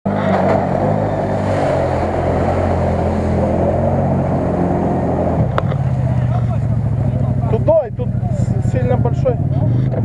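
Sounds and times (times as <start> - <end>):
engine running under load: 0.1 - 10.0
mud splashing: 0.3 - 7.0.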